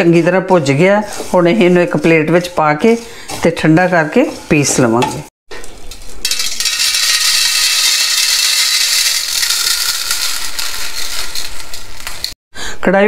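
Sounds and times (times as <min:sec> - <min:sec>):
seeds pattering on metal plate: 0:05.6 - 0:12.4.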